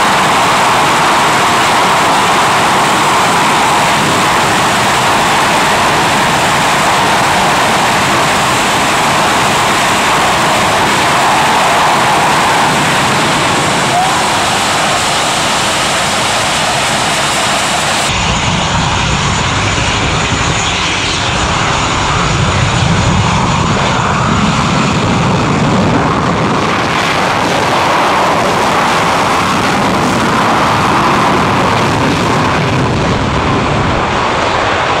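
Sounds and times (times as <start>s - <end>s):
jet engines running: 0.0s - 35.0s.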